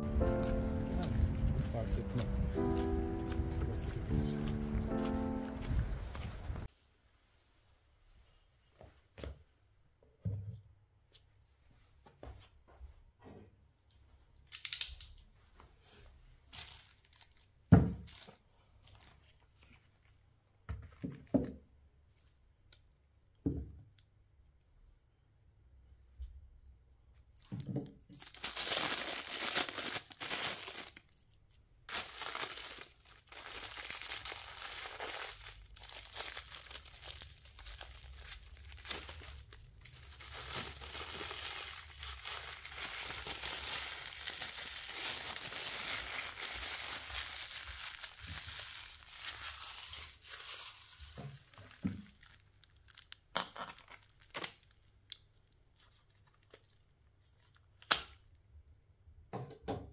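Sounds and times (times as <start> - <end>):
plastic wrap crinkling and tearing: 0.0 - 6.7, 16.4 - 20.2, 27.5 - 57.9.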